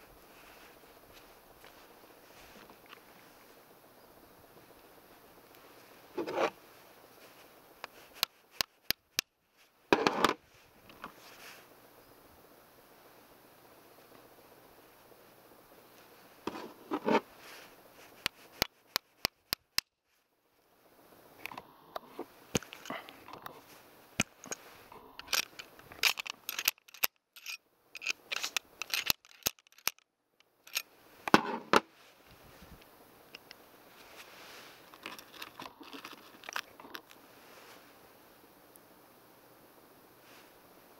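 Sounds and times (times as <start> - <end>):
scraping and rustling: 5.7 - 6.6, 16.0 - 18.6, 33.9 - 37.9.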